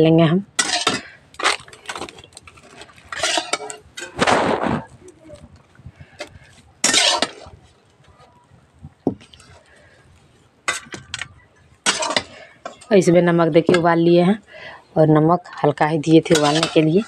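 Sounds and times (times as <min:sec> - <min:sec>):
metal ladle scraping steel pan: 0:00.6 - 0:04.3, 0:06.8 - 0:07.6, 0:10.7 - 0:12.9, 0:16.2 - 0:17.0.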